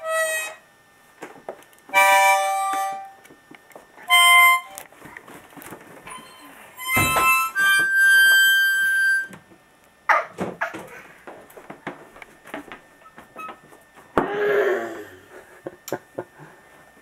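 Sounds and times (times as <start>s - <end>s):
harmonica chords: 0.0s - 0.7s, 1.9s - 3.3s, 4.0s - 4.9s, 6.1s - 9.4s.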